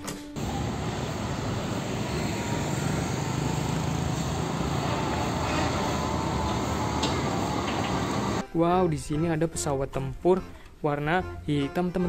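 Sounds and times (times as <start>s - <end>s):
road and traffic noise: 0.4s - 8.4s
truck diesel engine passing: 0.4s - 8.4s.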